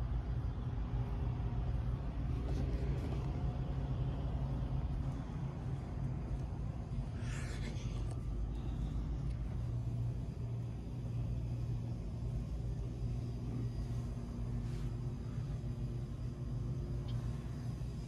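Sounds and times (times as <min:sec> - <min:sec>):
store background rumble and hum: 0:00.0 - 0:18.0.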